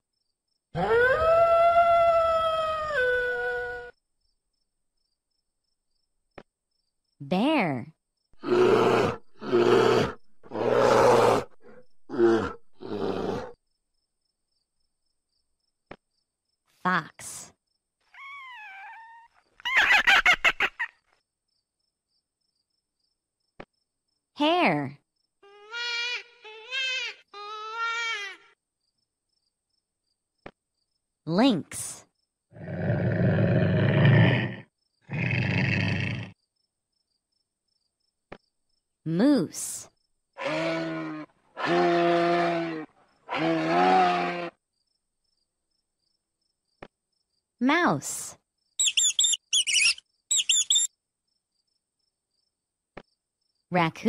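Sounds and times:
bear growling: 8.4s - 13.6s, 32.5s - 36.4s, 40.4s - 44.6s
lynx rough cries: 40.4s - 44.6s.

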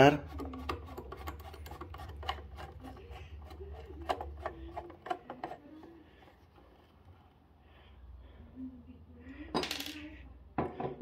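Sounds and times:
screwdriver clicks and scrapes: 0.3s - 6.4s.

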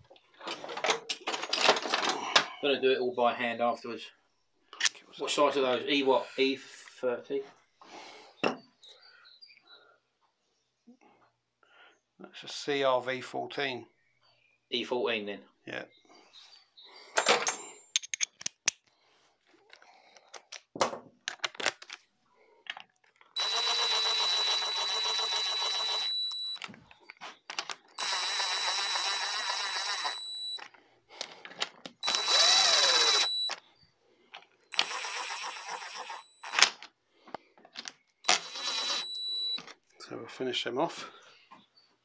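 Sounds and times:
metallic clicks of bolts: 17.2s - 18.8s
impact driver motor whine: 23.4s - 26.6s, 28.0s - 30.6s, 32.0s - 33.6s, 34.7s - 36.7s, 38.3s - 39.6s.

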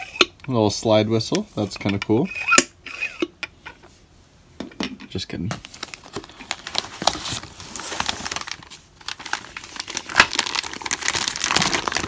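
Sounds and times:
plastic bag crinkling: 5.5s - 12.0s.

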